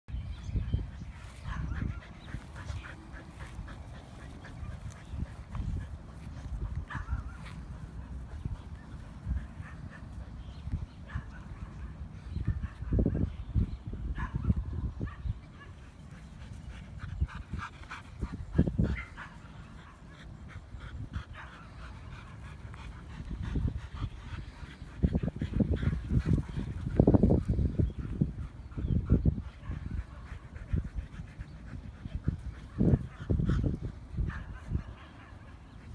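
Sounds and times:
dogs panting: 0.3s - 14.3s, 15.0s - 35.9s.

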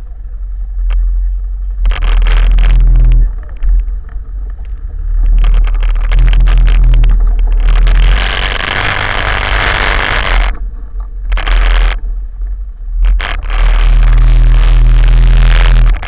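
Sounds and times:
quad bike engine revving: 1.8s - 3.4s, 4.9s - 10.6s, 11.3s - 12.0s, 13.0s - 16.0s.

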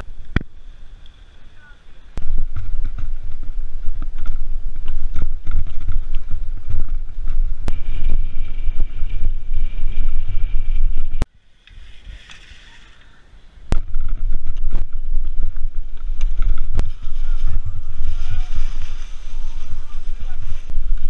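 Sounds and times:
bike rumbling over rough ground: 0.0s - 21.0s
wind buffeting microphone: 2.1s - 11.3s, 13.6s - 21.0s
bike knocks and rattles: 2.3s - 11.1s.

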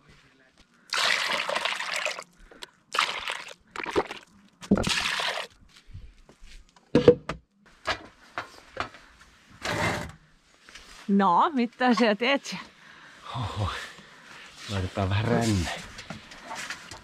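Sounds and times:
water pouring: 0.9s - 5.6s.

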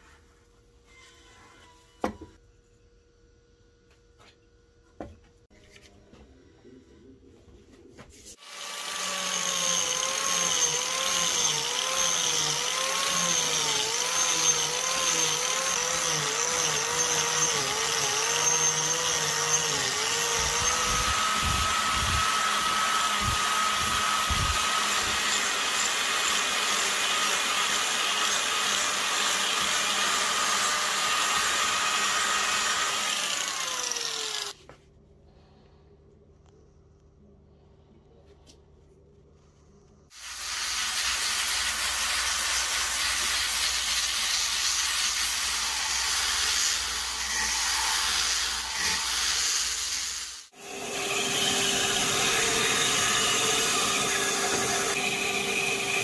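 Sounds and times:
angle grinder grinding wood: 8.3s - 34.6s, 40.1s - 56.0s.

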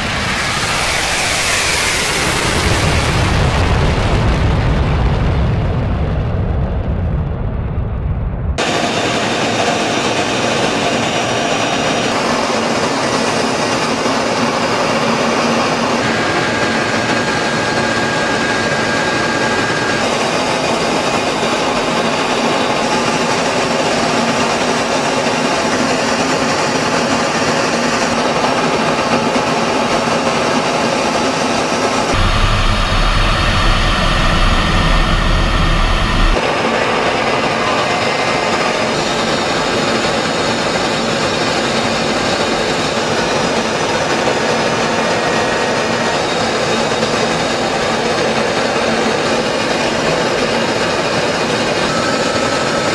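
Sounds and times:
deep rumble: 0.0s - 8.6s, 32.1s - 36.4s
jet engine and rushing air: 0.0s - 22.1s, 32.0s - 39.3s.

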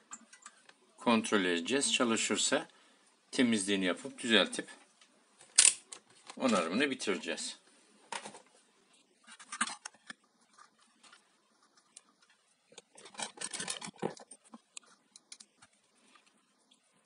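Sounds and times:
hands handling wires clicking: 11.9s - 16.4s.

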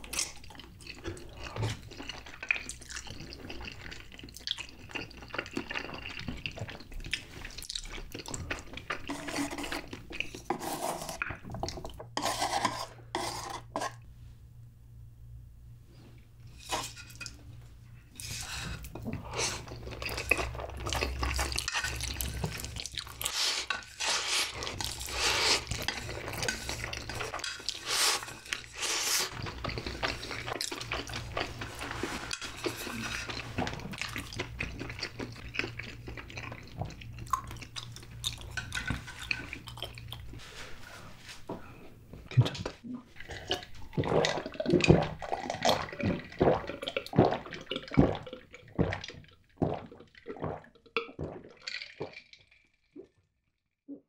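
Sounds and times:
slurping and chewing noodles: 0.0s - 14.0s, 18.1s - 40.4s, 42.3s - 52.3s.

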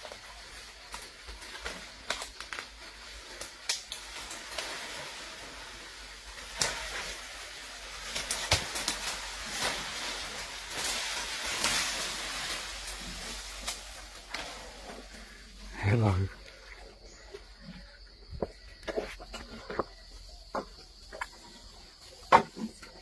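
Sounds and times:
leaves rustling: 0.0s - 18.2s
twigs snapping: 2.0s - 2.7s, 3.4s - 4.6s.

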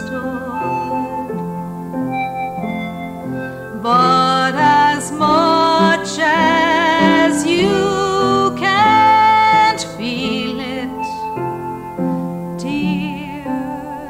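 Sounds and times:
woman singing with vibrato: 0.0s - 1.5s, 3.7s - 11.4s, 12.6s - 14.0s
gentle instrumental accompaniment: 0.0s - 14.0s.

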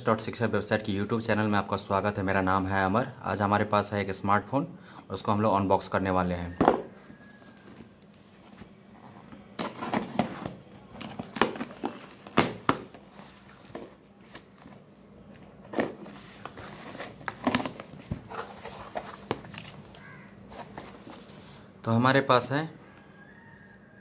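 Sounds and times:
cardboard box being opened: 15.7s - 21.4s.

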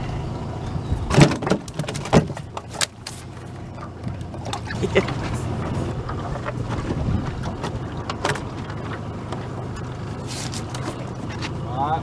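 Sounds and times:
boat motor running: 0.0s - 12.0s
wind on microphone: 4.8s - 7.9s.

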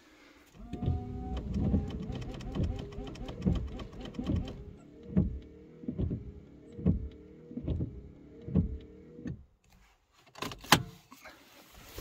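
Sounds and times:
wiper sweep thuds: 0.6s - 8.8s
wiper motor humming: 0.6s - 9.4s.

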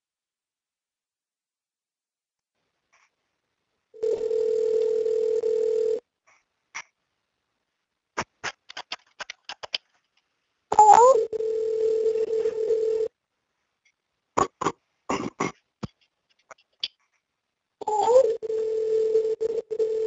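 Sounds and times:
dial tone with rising chirp: 10.7s - 13.1s, 17.8s - 20.0s.

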